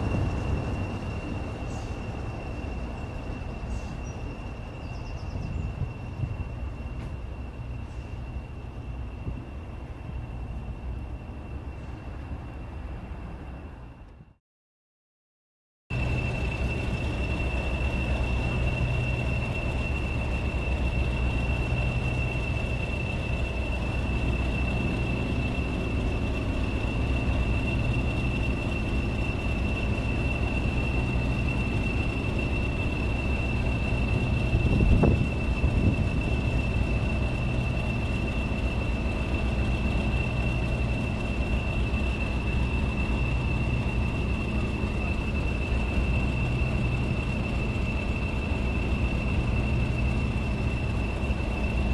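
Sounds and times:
diesel locomotive idling: 0.0s - 14.4s, 15.9s - 51.9s
turbocharger whistle: 15.9s - 51.9s.

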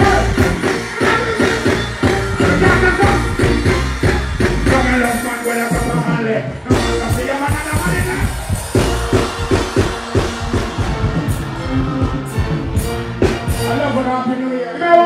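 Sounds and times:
dancehall backing track: 0.0s - 14.2s
performer's voice on microphone: 2.4s - 3.8s, 4.6s - 8.4s.

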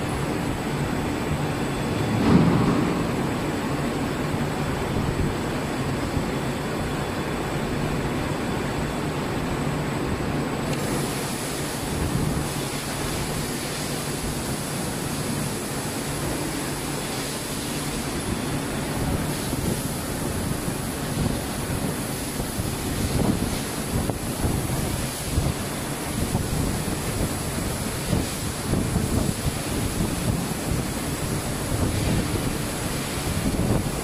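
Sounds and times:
low machinery hum: 0.0s - 34.0s
even rushing noise: 1.9s - 5.0s.

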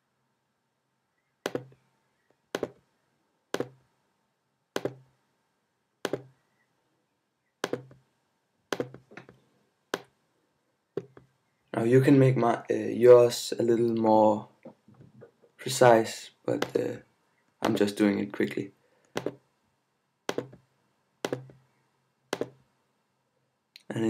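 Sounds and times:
mouse button clicks: 4.8s - 5.0s, 7.6s - 8.0s, 8.7s - 9.0s, 21.2s - 21.6s.

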